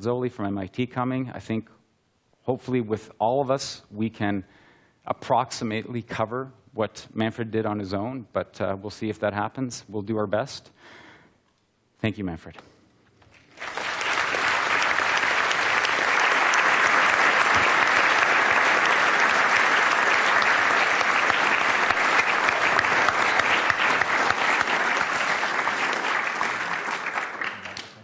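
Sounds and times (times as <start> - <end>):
audience applauding: 13.3 - 28.0.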